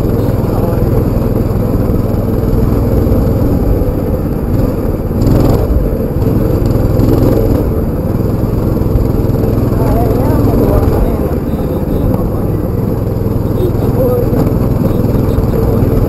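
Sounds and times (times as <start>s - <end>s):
small motorbike engine running: 0.0s - 16.0s.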